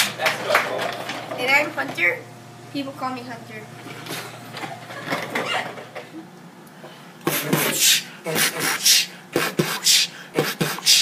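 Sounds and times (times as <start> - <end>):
beatboxing: 7.2 - 11.0.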